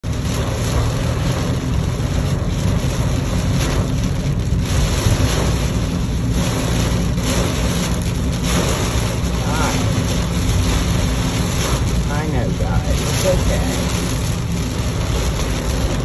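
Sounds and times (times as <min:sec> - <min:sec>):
engine and tire drone: 0:00.0 - 0:16.0
heavy rain on car roof: 0:00.0 - 0:16.0.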